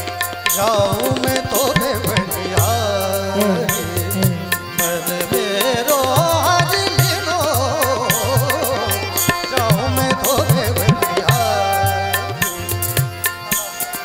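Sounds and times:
harmonium tones: 0:00.0 - 0:14.0
man singing: 0:00.0 - 0:14.0
tabla rhythm: 0:00.0 - 0:14.0.

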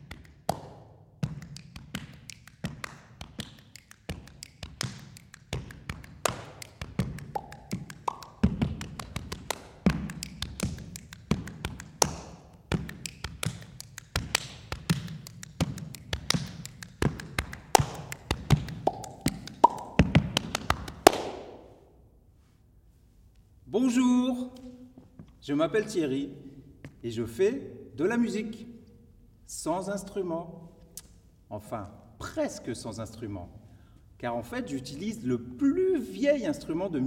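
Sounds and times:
body percussion claps and slaps: 0:00.0 - 0:21.8.

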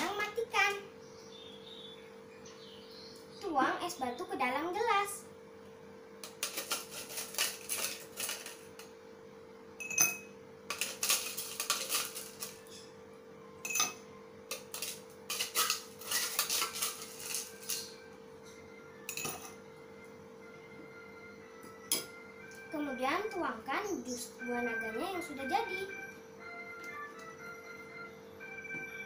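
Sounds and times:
spoon and glassware clinking: 0:06.2 - 0:08.6, 0:09.8 - 0:12.9, 0:13.6 - 0:19.6, 0:21.6 - 0:22.2.

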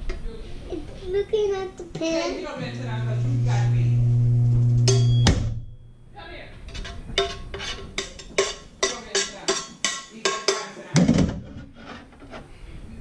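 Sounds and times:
low humming tone: 0:02.7 - 0:06.2
metal utensil clinking in pan: 0:06.7 - 0:10.8.

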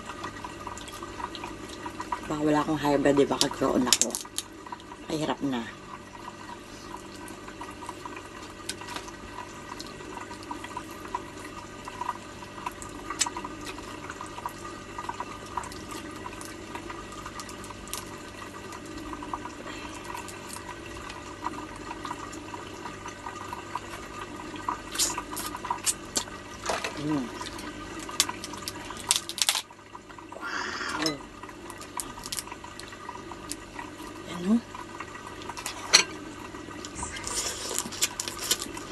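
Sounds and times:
aquarium filter water trickling: 0:00.0 - 0:38.9
crab shell cracking: 0:28.0 - 0:29.7, 0:31.8 - 0:32.9.

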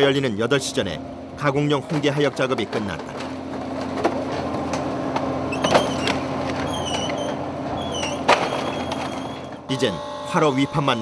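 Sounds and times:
engine hum: 0:00.0 - 0:11.0
short high squeaks: 0:05.5 - 0:11.0.

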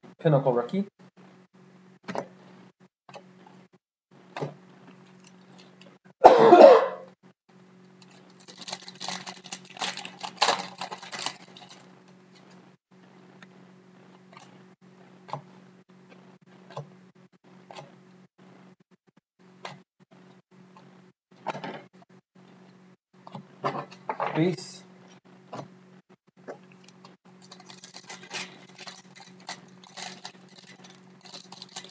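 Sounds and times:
person coughing: 0:06.2 - 0:07.0
foil card pack crinkling and tearing: 0:08.0 - 0:11.9, 0:27.4 - 0:31.9.

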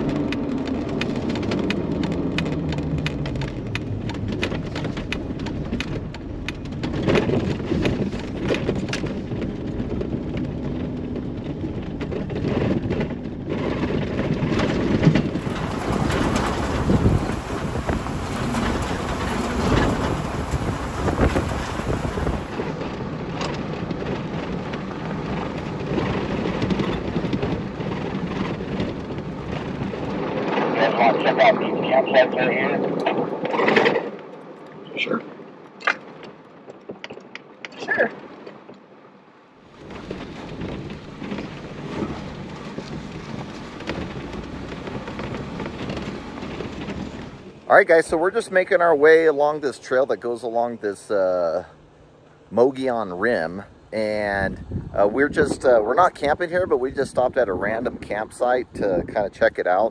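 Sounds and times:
road noise inside cab: 0:00.0 - 0:36.8, 0:37.7 - 0:48.3
wind buffeting microphone: 0:00.0 - 0:37.6, 0:39.6 - 0:59.9
engine and tyre rumble: 0:00.0 - 0:59.9.

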